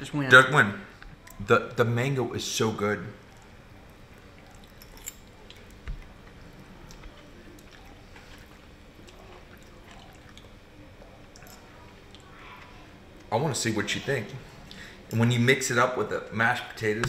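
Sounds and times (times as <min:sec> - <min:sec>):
people chewing: 0:03.2 - 0:13.3, 0:14.4 - 0:15.2.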